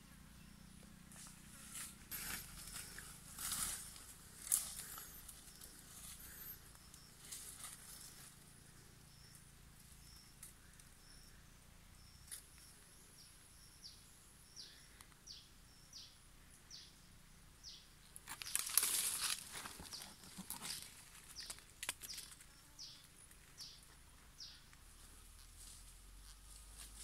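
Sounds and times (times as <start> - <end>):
bird calling: 0.0 - 9.4.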